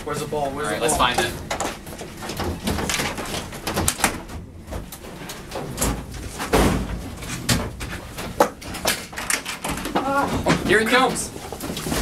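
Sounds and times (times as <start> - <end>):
knocks and clatters of handling: 1.0 - 12.0
heavy thump: 5.8 - 7.8.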